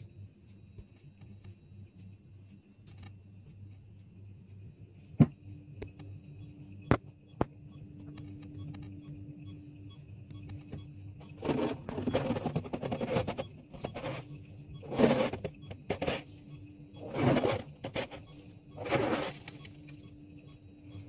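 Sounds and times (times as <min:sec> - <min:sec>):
faint steady hum: 0:00.0 - 0:21.0
freezer frost being scraped: 0:11.4 - 0:16.4, 0:17.0 - 0:19.6.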